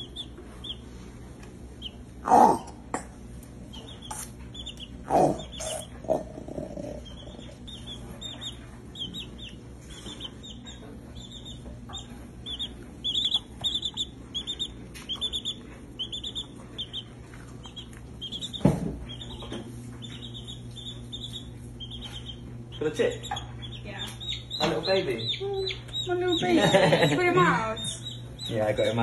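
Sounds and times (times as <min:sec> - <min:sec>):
baby chick peeping: 0:00.0 - 0:29.0.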